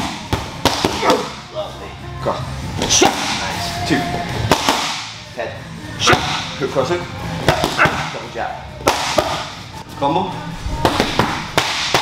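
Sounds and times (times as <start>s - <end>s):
punches slapping focus mitts: 0.0s - 1.4s, 4.4s - 5.1s, 7.4s - 8.2s, 8.8s - 9.5s, 10.8s - 12.0s.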